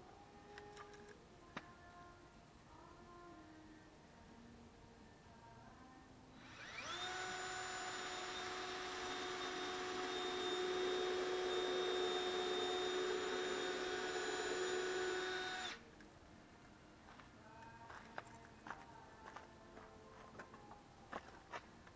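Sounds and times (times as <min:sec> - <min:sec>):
power drill spinning: 0:06.4 - 0:15.8.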